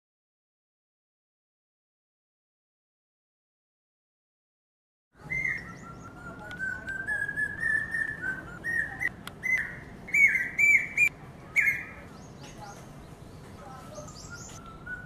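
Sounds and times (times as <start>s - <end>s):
hawk-cuckoo shrill whistled calls: 5.2s - 12.0s, 13.9s - 15.0s.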